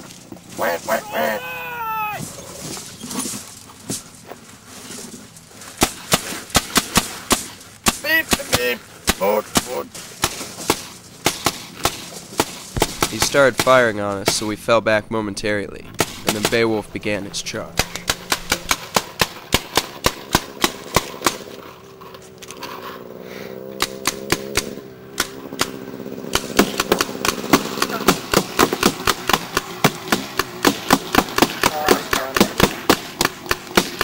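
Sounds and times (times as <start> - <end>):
paintball markers firing: 5.8 - 14.7, 15.9 - 22.7, 23.7 - 34.0.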